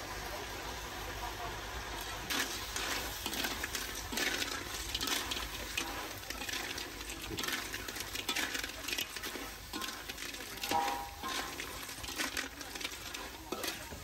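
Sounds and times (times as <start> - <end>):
small hard objects clattering: 2.2 - 14.0.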